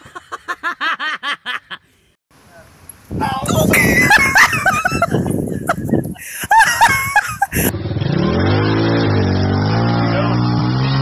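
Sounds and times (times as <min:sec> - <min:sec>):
people laughing: 0:03.5 - 0:07.7
dirt bike engine revving: 0:07.6 - 0:11.0.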